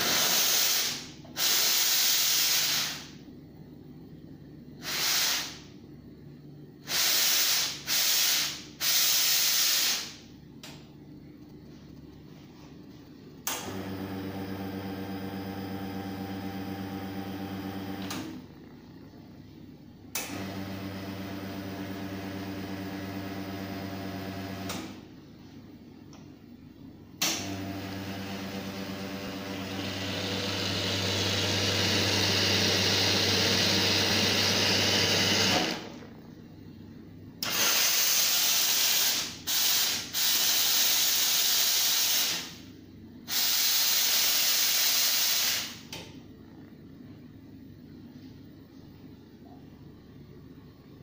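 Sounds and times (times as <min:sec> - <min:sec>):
steam hissing: 0:00.0 - 0:03.1, 0:04.8 - 0:05.6, 0:06.8 - 0:10.2, 0:37.4 - 0:42.6, 0:43.3 - 0:45.8
espresso machine pump humming: 0:27.4 - 0:36.0.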